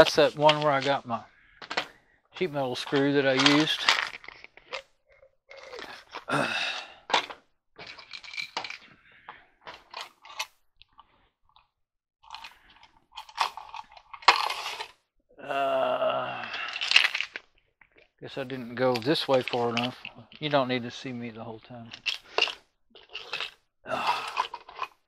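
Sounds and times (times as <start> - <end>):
screws clinking and rattling: 1.6 - 4.9, 7.1 - 9.0, 9.7 - 10.6, 12.2 - 15.0, 16.7 - 18.1, 18.8 - 20.6, 21.9 - 25.0.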